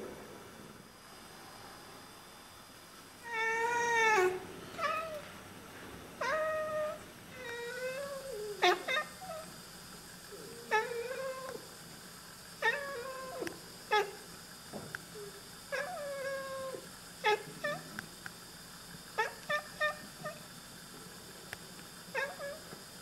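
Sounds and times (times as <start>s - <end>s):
cat meowing and chirping: 3.2s - 5.3s, 6.2s - 9.5s.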